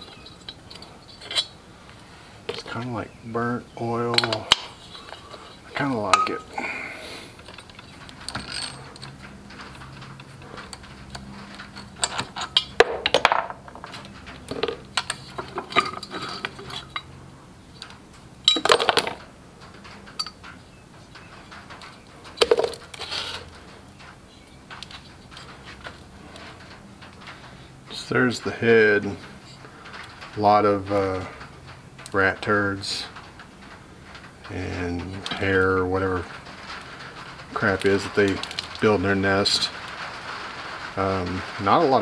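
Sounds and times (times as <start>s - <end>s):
bolts and ratchet clinking on metal: 0.0s - 6.6s, 7.3s - 42.0s.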